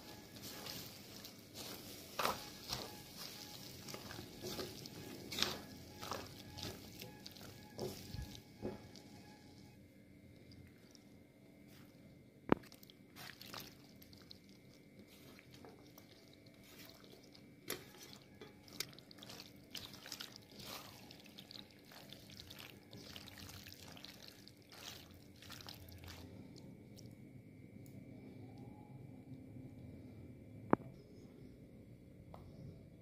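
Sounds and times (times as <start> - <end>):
wet squelching and scraping: 0.0 - 9.8, 11.7 - 27.1.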